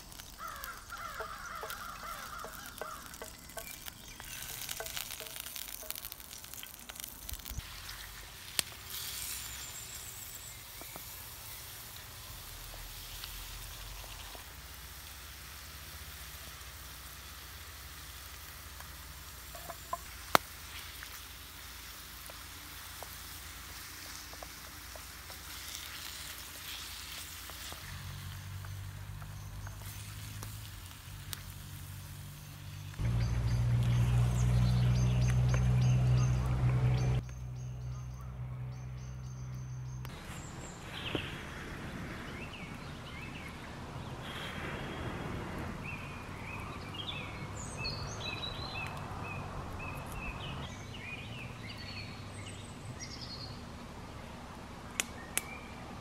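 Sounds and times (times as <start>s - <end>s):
food sizzling in a frying pan: 0.0s - 33.9s.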